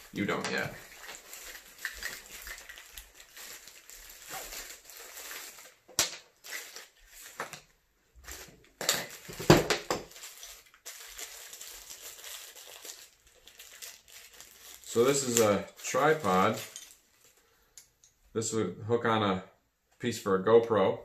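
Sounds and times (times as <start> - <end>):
bag rustling: 10.1 - 17.6.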